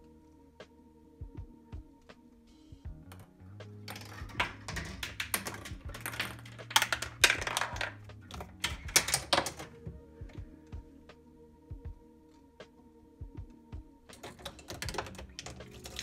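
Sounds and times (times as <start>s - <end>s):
plastic balls clicking and rattling: 3.1s - 9.8s, 14.1s - 16.0s.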